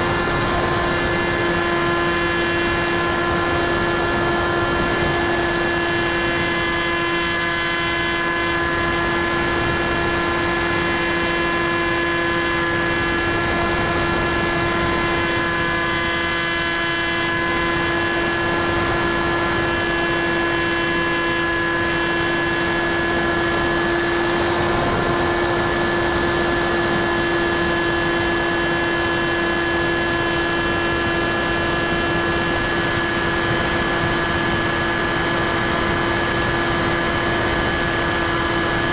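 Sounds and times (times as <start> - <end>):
rushing airflow noise: 0.0 - 16.0
electric motor buzzing whine: 0.0 - 38.9.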